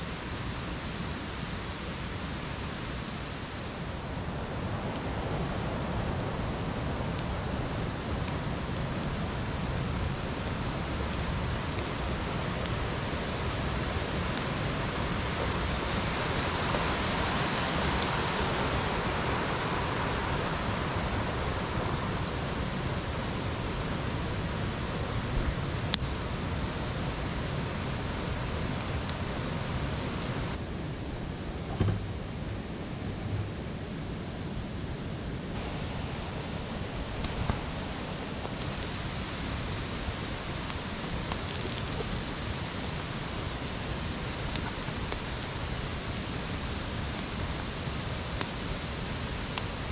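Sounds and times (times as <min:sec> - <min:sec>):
rushing forest ambience: 0:00.0 - 0:49.9
campfire pops: 0:08.1 - 0:17.0, 0:28.2 - 0:29.4, 0:31.7 - 0:32.2, 0:37.1 - 0:37.7, 0:38.4 - 0:39.2, 0:39.9 - 0:49.9.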